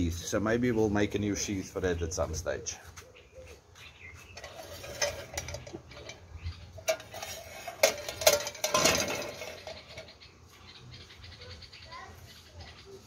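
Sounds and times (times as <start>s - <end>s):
metal tin scraping: 4.3s - 10.2s
metal tins clinking on grill: 4.3s - 10.2s.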